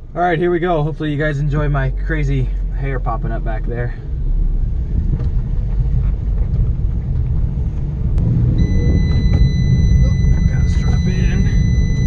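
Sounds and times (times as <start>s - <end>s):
car engine and road rumble: 0.0s - 12.0s
seatbelt warning tone: 8.4s - 12.0s.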